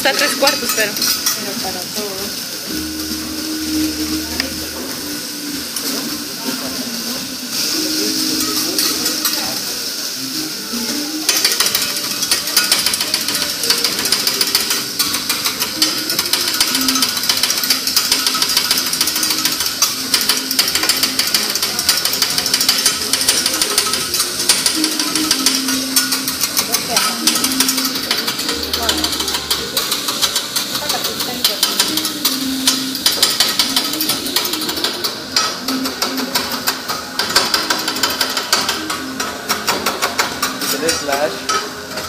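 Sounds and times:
food sizzling: 0:00.0 - 0:42.0
metal spatulas clacking on griddle: 0:00.1 - 0:01.6, 0:11.3 - 0:42.0.

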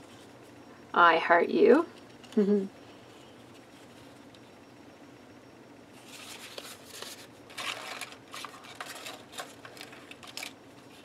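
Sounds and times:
paper cards rustling and tapping: 0:06.1 - 0:10.5.

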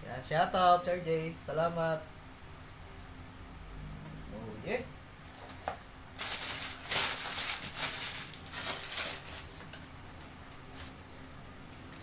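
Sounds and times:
wrapping paper tearing and crumpling: 0:06.2 - 0:09.7.

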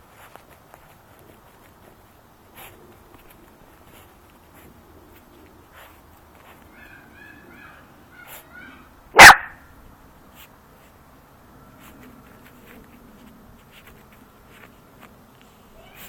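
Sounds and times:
paws scratching in soil: 0:00.0 - 0:08.8, 0:10.2 - 0:16.0
puppy barking: 0:06.5 - 0:09.6.

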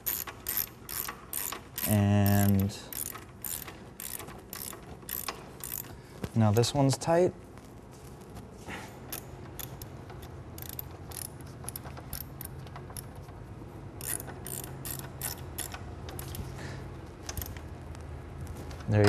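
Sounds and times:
socket ratchet clicking: 0:00.0 - 0:06.0, 0:09.1 - 0:13.2, 0:14.0 - 0:16.4, 0:17.3 - 0:17.6
steady low hum: 0:00.0 - 0:19.0.

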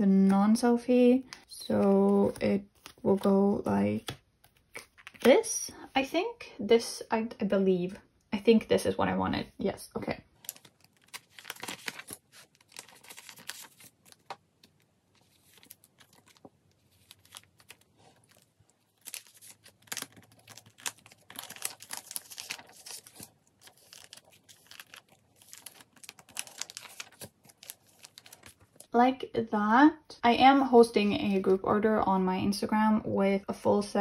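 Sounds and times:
plastic crinkling and rustling: 0:10.3 - 0:29.0.

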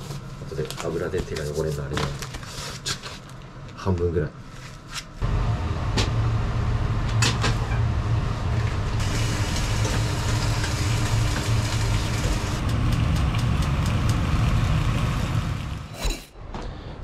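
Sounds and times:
steady low hum: 0:05.2 - 0:16.1.

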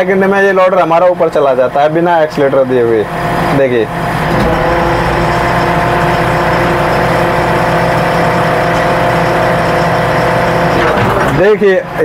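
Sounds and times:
diesel engine idling: 0:01.3 - 0:12.0
hydraulics lifting loader arms: 0:03.0 - 0:12.0.

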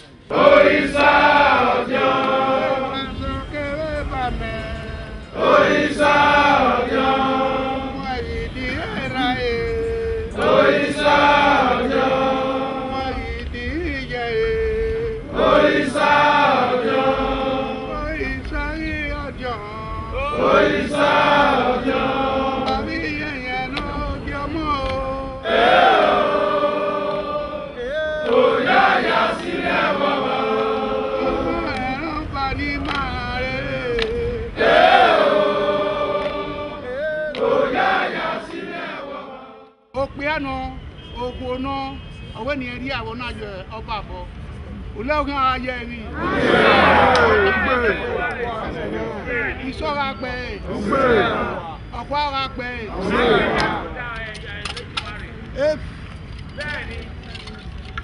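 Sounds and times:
men chanting together: 0:00.3 - 0:03.4, 0:05.3 - 0:09.2, 0:09.9 - 0:13.3, 0:14.9 - 0:18.4, 0:20.1 - 0:39.7, 0:46.1 - 0:49.5, 0:50.6 - 0:51.8, 0:52.9 - 0:54.0.

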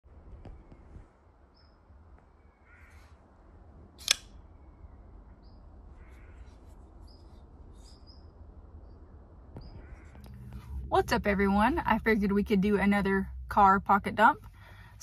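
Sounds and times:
faint bird calls: 0:00.4 - 0:03.3, 0:04.3 - 0:10.8
crow cawing: 0:02.5 - 0:03.2, 0:05.9 - 0:06.6, 0:09.7 - 0:10.4
folding knife blade snapping open: 0:04.0 - 0:04.3
low background rumble: 0:06.9 - 0:15.0.

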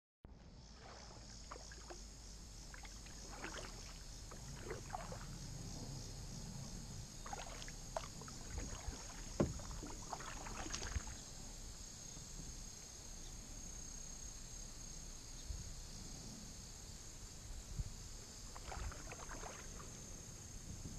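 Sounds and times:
insect chorus: 0:00.3 - 0:20.9
paddle dripping and splashing: 0:00.8 - 0:05.4, 0:07.2 - 0:11.3, 0:18.4 - 0:20.0
paddle knocks: 0:07.2 - 0:11.2.

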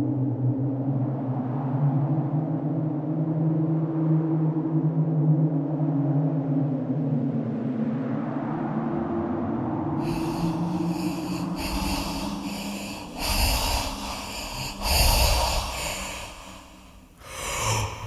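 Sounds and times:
low sustained drone: 0:10.0 - 0:18.0
slow heavy breathing: 0:10.0 - 0:18.0.

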